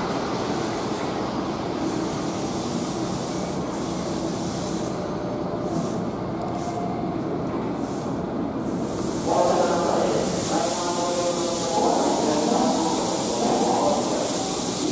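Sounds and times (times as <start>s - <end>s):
electric train slowing to a stop: 0.0s - 14.9s.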